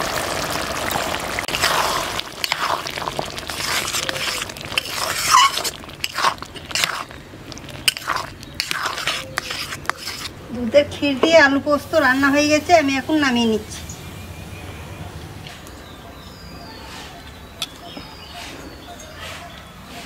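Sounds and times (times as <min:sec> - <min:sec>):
metal spatula scraping a pan: 0:01.5 - 0:10.4.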